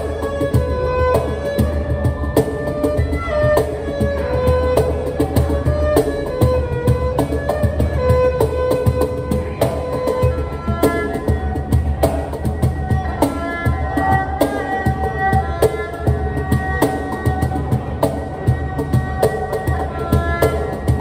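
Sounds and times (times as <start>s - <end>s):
cajon beat: 0.0s - 21.0s
erhu melody with slides: 0.0s - 21.0s.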